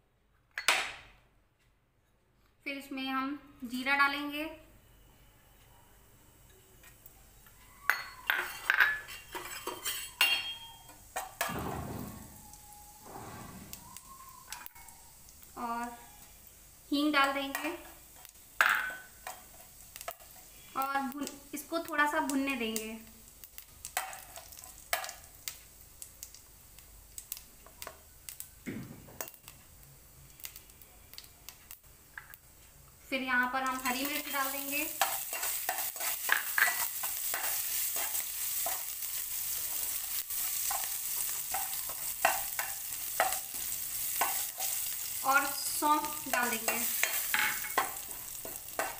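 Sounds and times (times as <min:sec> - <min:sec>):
seeds crackling in hot oil: 0:07.0 - 0:48.9
spoon clinking against glass bowls: 0:07.8 - 0:11.3.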